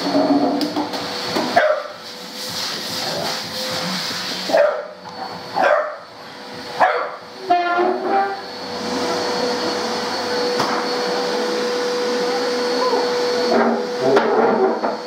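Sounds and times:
vacuum cleaner humming: 0.0s - 15.0s
dog barking: 1.6s - 2.0s, 4.5s - 5.0s, 5.6s - 6.1s, 6.8s - 7.2s.

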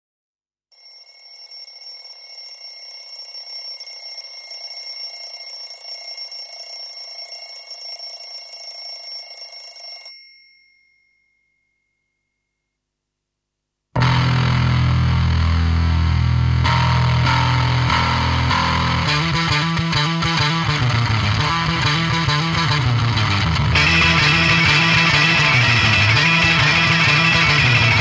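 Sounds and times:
alarm clock bell ringing: 0.7s - 12.3s.

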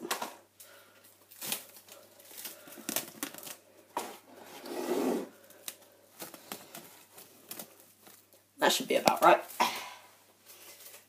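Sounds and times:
cling film crinkling: 0.6s - 3.8s, 5.4s - 9.6s, 10.4s - 11.0s.

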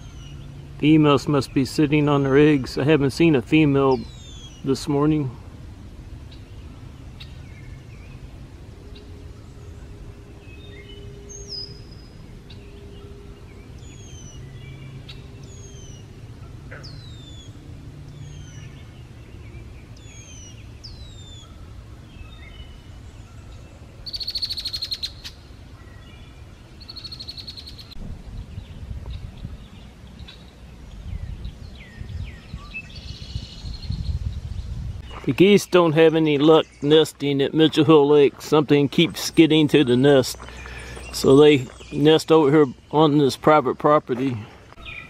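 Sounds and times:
low steady hum: 0.0s - 45.0s
buzzy bird trill: 24.0s - 25.5s.

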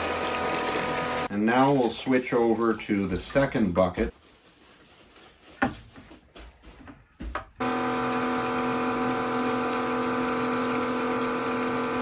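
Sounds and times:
electric pump whining: 0.0s - 1.3s, 7.6s - 12.0s.

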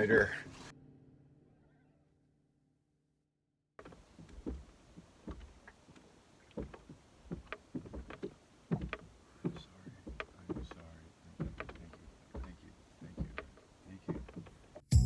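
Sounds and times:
water slapping against boat hull: 3.8s - 14.8s.

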